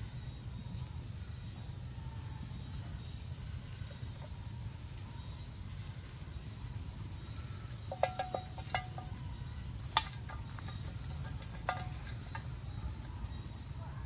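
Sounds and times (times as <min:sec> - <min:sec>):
tin can clinks and knocks: 0:07.9 - 0:09.2, 0:10.0 - 0:12.5.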